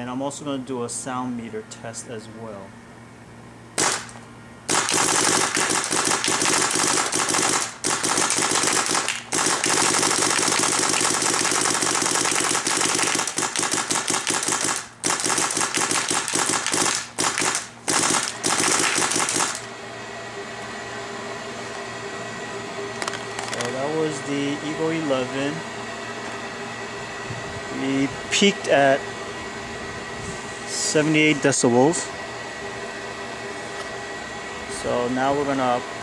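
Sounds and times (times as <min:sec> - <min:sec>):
paintball marker firing rapidly: 0:03.8 - 0:04.1, 0:04.7 - 0:19.7.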